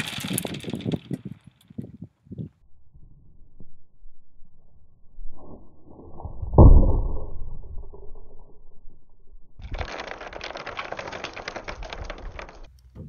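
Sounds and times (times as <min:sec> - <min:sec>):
steel balls rattling on wood: 0:00.0 - 0:02.0, 0:09.6 - 0:13.0.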